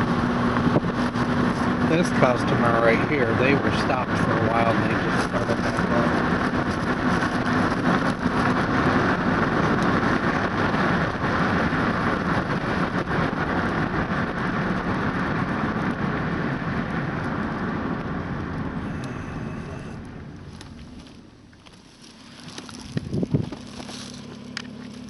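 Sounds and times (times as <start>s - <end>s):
car engine and tyre noise: 0.0s - 25.0s.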